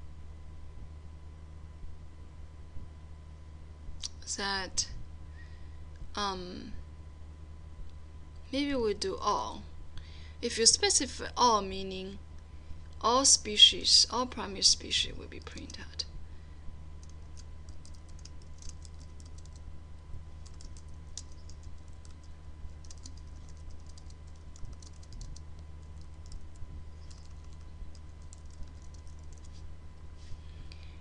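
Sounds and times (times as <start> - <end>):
steady low hum: 0.0 - 31.0
keyboard typing: 17.0 - 19.7, 20.4 - 29.6.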